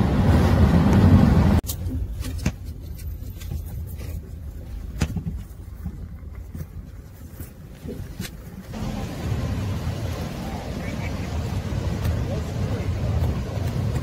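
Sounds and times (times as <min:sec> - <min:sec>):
street traffic: 0:00.0 - 0:05.0, 0:08.2 - 0:14.0
car road and wind rumble: 0:00.0 - 0:14.0.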